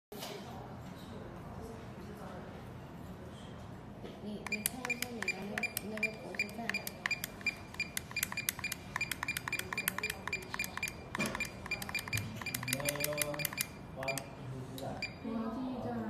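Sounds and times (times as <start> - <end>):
metal keypad buttons clicking: 4.4 - 14.3.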